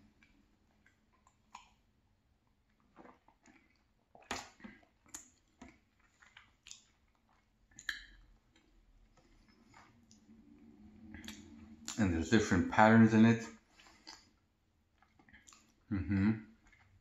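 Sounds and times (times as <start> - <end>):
chewing mouth sounds: 2.7 - 12.1, 13.5 - 15.9
swallowing drink: 15.0 - 17.0.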